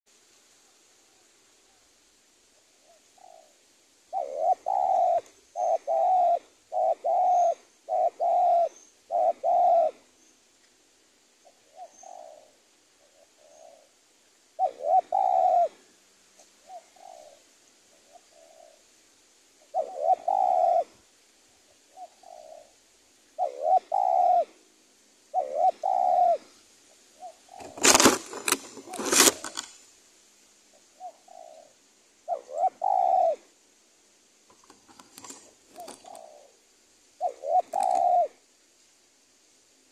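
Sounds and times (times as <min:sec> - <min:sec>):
dove cooing: 0:02.6 - 0:10.2, 0:11.4 - 0:14.0, 0:14.6 - 0:18.9, 0:19.6 - 0:21.0, 0:21.6 - 0:24.7, 0:25.3 - 0:29.7, 0:30.7 - 0:33.5, 0:35.0 - 0:38.4.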